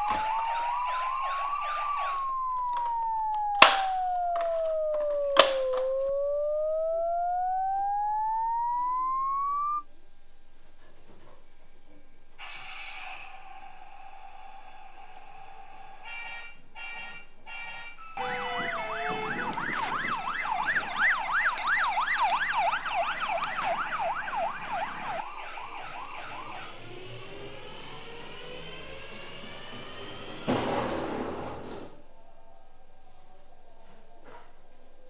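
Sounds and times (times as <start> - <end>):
yelping toy siren wail: 0.0 - 9.8, 16.8 - 30.4
short electronic beeping tones: 5.2 - 9.8.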